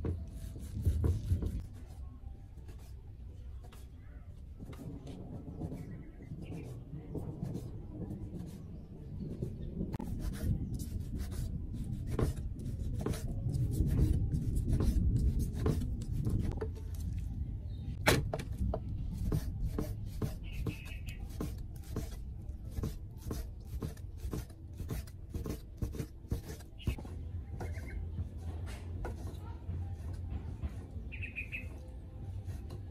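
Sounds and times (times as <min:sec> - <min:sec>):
low rumble: 0:04.4 - 0:20.4.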